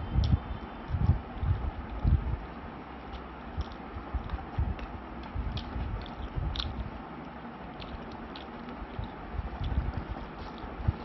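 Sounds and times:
close-up chewing: 0.2 - 11.0
wet mouth clicks and smacks: 3.2 - 6.9, 7.8 - 10.8.

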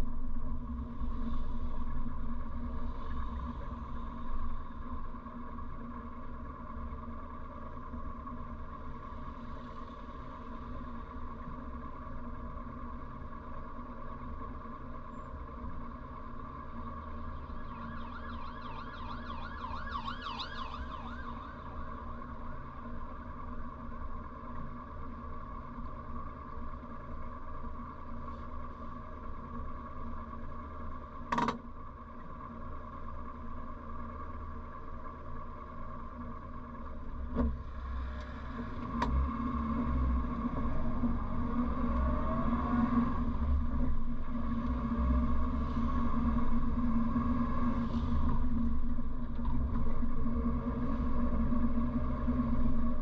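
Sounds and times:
car engine idling: 0.0 - 53.0
police siren warbling: 16.9 - 22.3.

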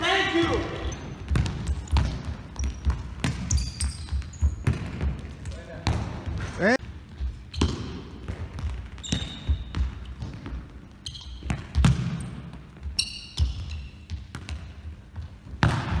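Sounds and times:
shoes squeaking on floor: 0.2 - 5.6, 6.4 - 14.3
ball kicks and bounces: 1.0 - 6.5, 7.2 - 16.0.

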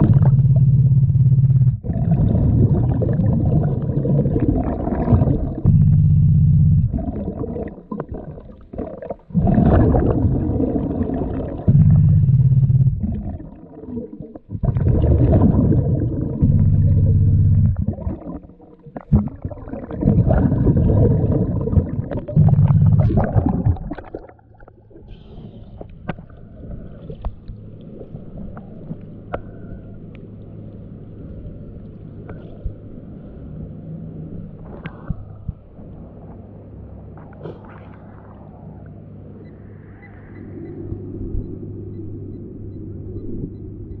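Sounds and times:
low hum: 0.0 - 44.0
small water splashes: 17.7 - 29.4.

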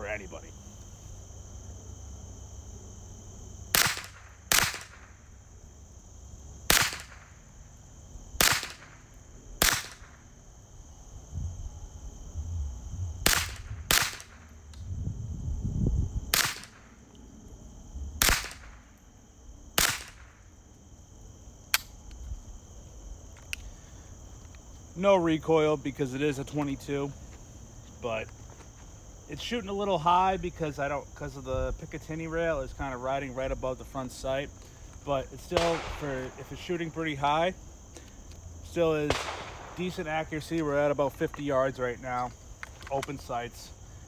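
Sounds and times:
rifle shots cracking: 3.7 - 5.2, 6.7 - 7.4, 8.4 - 10.2, 13.2 - 14.5, 16.3 - 17.0, 18.2 - 18.9, 19.8 - 20.4, 35.5 - 36.6, 39.0 - 40.0.

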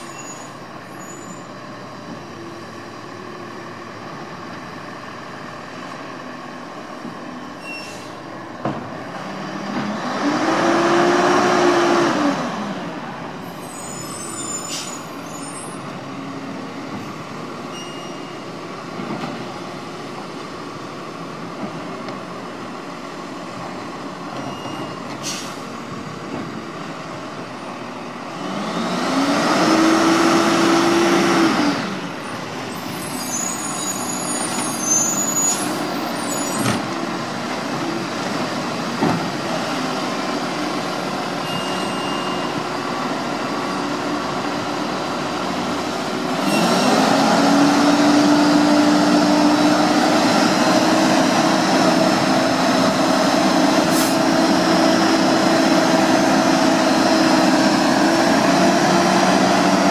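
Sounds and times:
garbage truck diesel engine revving: 9.2 - 13.2, 26.8 - 32.7, 42.5 - 59.9.

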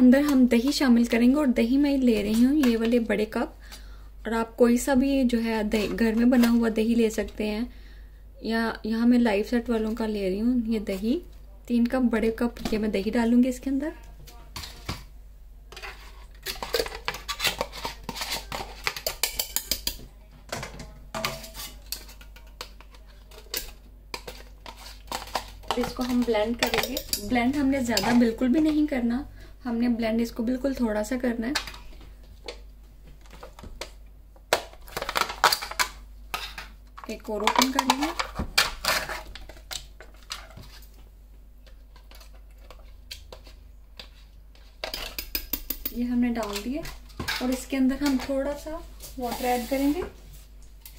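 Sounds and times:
spoon scraping and tapping plastic: 15.7 - 20.0, 21.2 - 27.3, 41.6 - 48.4.

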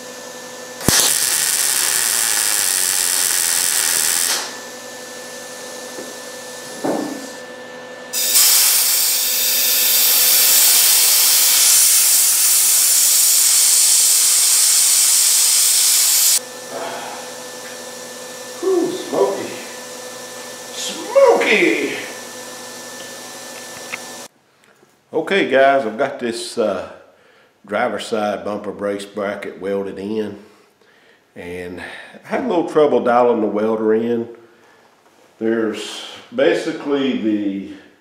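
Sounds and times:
welder arc crackling: 0.8 - 4.6, 8.2 - 16.4.

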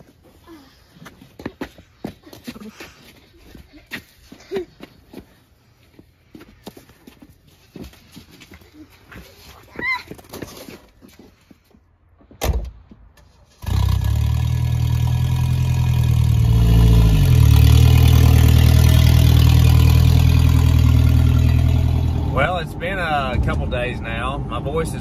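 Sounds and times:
car engine running: 13.6 - 23.7.

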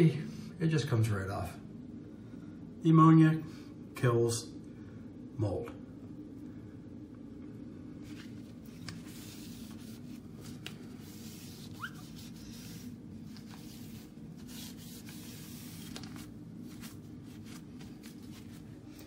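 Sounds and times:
exhaust fan hum: 0.0 - 19.0
cloth rubbing on window frame: 8.1 - 19.0.

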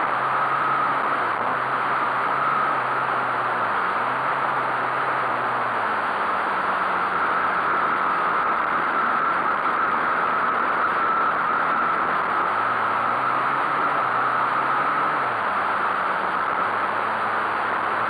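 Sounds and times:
pit bike engine: 0.0 - 18.0.

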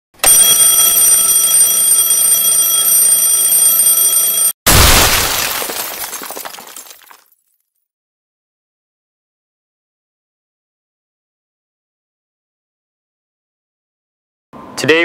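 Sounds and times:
alarm clock ringing: 0.2 - 4.6
explosion and shattering: 4.7 - 7.3
debris clinking: 4.7 - 7.4.

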